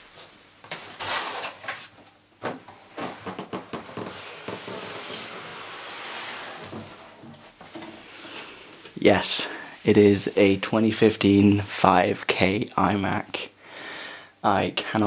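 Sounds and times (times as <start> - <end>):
cardboard scraping cardboard: 3.7 - 7.3.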